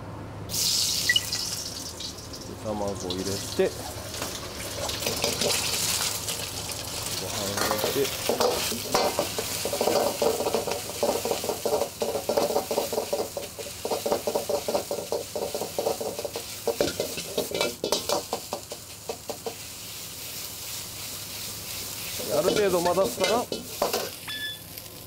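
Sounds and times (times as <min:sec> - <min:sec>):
hot oil sizzling: 0:00.5 - 0:25.0
metal ladle scraping a wok: 0:07.6 - 0:19.7.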